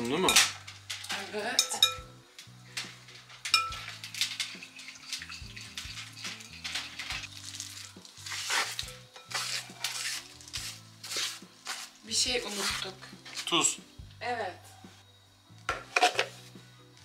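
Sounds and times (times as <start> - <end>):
scraping on cutting mat: 8.3 - 13.4.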